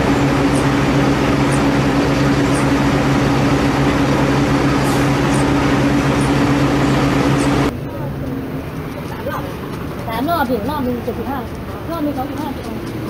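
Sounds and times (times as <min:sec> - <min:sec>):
mechanical drone humming: 0:00.0 - 0:08.8.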